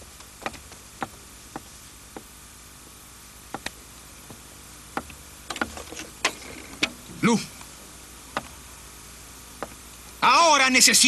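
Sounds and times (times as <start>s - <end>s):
footsteps of hard-soled shoes: 0.0s - 2.3s
low hiss: 0.0s - 11.0s.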